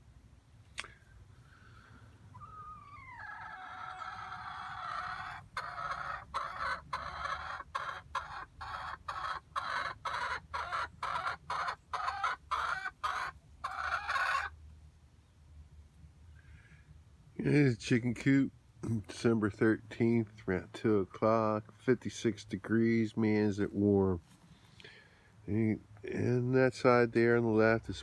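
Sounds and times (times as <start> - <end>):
hen clucking and calling: 2.2 - 14.6.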